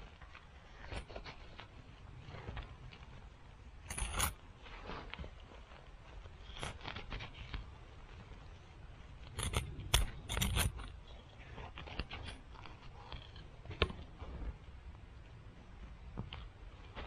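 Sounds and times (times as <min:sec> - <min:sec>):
soil scratches and clicks: 0:00.0 - 0:17.0
trowel scraping soil: 0:09.2 - 0:13.5.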